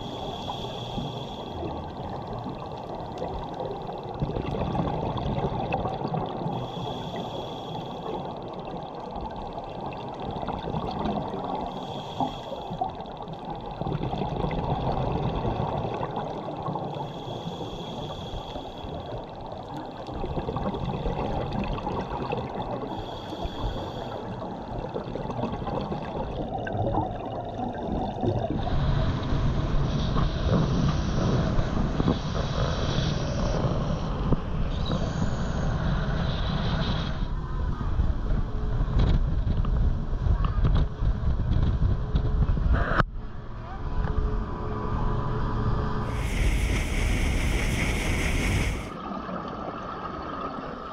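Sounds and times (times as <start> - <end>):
scuba regulator bubbles underwater: 0.0 - 34.5, 46.1 - 50.9.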